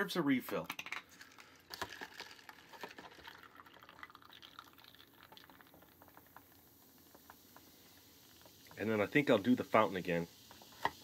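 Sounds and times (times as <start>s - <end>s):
liquid trickling into a cup: 0.7s - 9.0s
fizzing: 1.1s - 11.0s.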